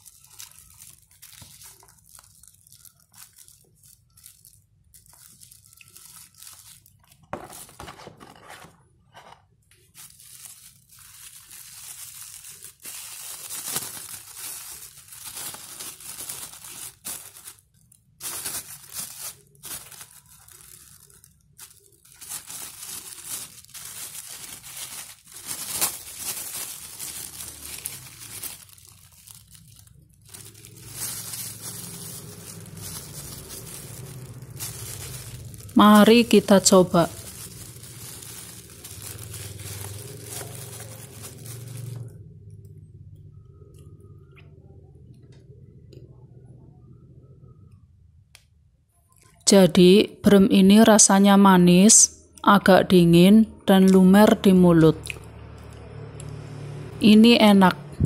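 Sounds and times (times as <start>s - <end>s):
plastic wrapper crinkling and tearing: 0.0s - 8.6s, 9.7s - 42.8s.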